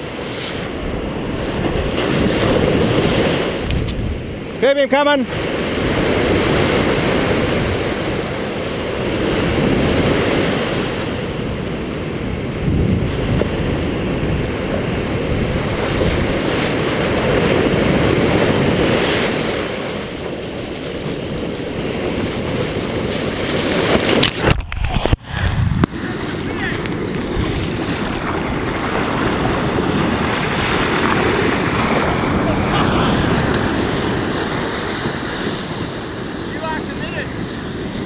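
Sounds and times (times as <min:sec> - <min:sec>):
wind rumbling on microphone: 0:00.0 - 0:04.6, 0:05.3 - 0:38.0
surf breaking on beach: 0:00.0 - 0:38.0.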